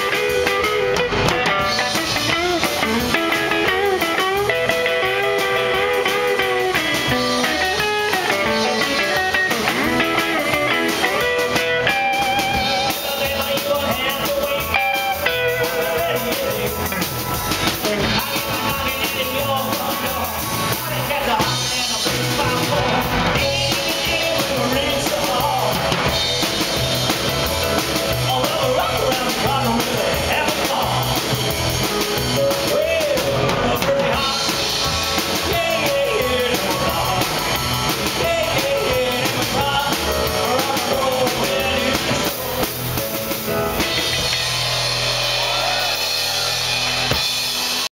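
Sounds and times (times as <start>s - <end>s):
electric guitar solo: 0.0s - 12.9s
man singing: 0.0s - 44.4s
drums: 0.0s - 47.9s.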